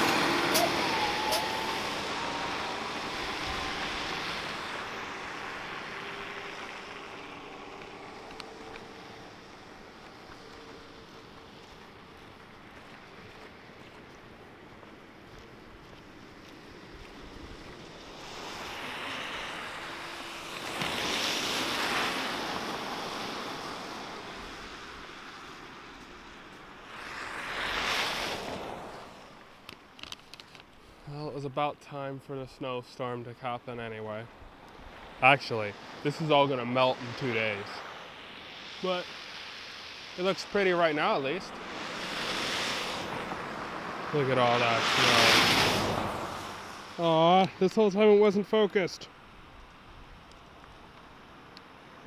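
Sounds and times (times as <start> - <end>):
car tyres hissing on slush: 0.0 - 14.0, 16.0 - 34.3, 34.9 - 47.8
bus driving off on snowy road: 0.0 - 30.0, 41.1 - 47.2.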